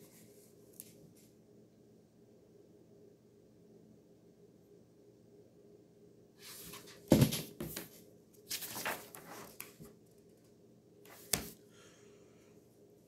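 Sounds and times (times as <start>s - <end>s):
book pages rustling: 6.5s - 10.0s, 11.1s - 11.6s
book bumping: 7.1s - 7.9s.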